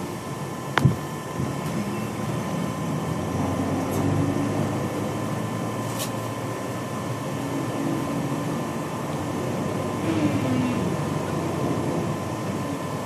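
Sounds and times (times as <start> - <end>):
train rumbling: 7.4 - 12.8.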